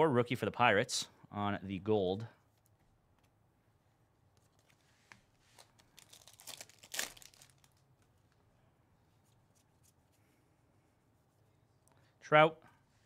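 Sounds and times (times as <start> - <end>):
plastic packaging crinkling: 5.5 - 8.1.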